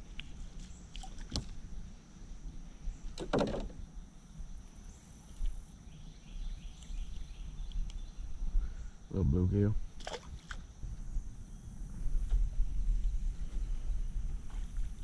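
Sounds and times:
low steady rumble: 10.6s - 15.0s.

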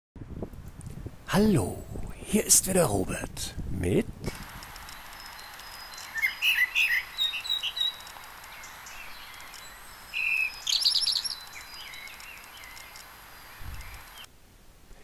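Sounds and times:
steady hiss: 4.3s - 15.0s
songbirds chirping: 4.4s - 14.3s.

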